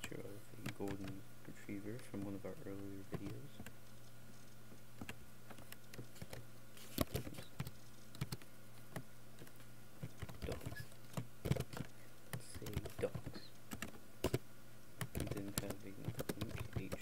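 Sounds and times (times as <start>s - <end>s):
keyboard key clicks: 15.0s - 17.0s.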